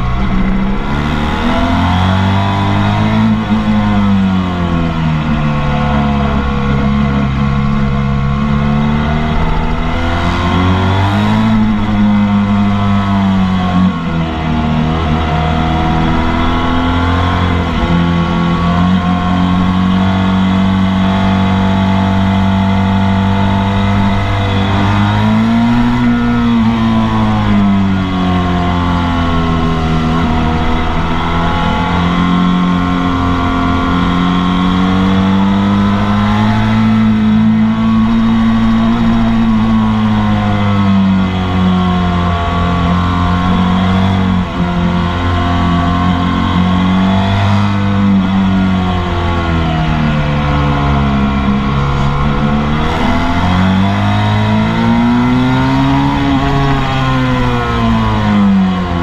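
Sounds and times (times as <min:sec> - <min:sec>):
motorcycle engine running hard: 0:00.0 - 0:59.0.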